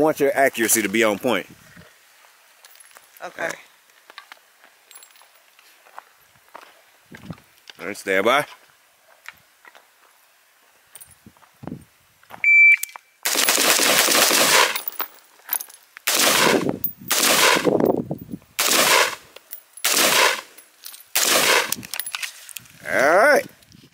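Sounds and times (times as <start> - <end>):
shot timer beep: 12.4 - 12.9
gunfire strings: 13.3 - 15.0, 18.6 - 19.2, 19.8 - 20.5, 21.2 - 22.3.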